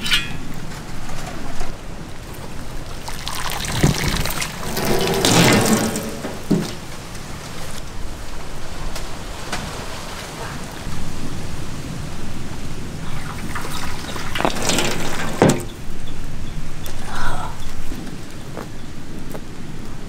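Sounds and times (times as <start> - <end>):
water splashing in a pot: 2.9 - 6.7.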